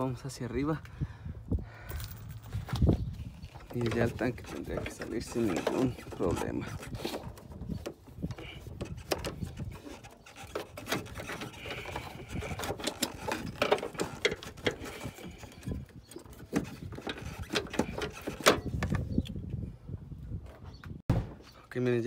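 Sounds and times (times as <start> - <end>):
car parts clicking and rattling: 1.9 - 19.4.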